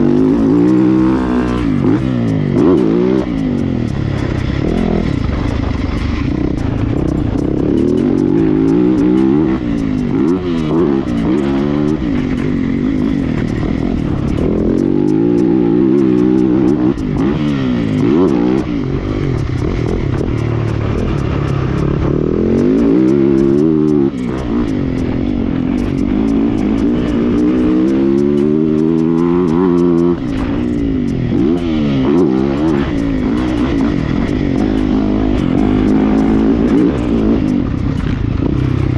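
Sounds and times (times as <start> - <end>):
motorbike engine revving: 0.0 - 38.9.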